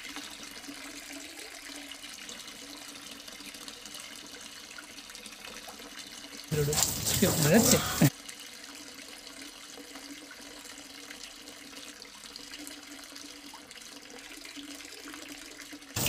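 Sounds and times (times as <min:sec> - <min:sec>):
hose spraying water: 0:06.5 - 0:08.1
water splashing on concrete: 0:06.5 - 0:08.1.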